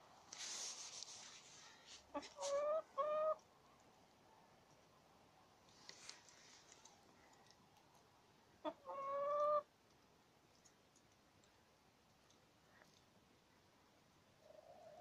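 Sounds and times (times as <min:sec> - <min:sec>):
hen calling: 0:02.1 - 0:03.4, 0:08.6 - 0:09.6.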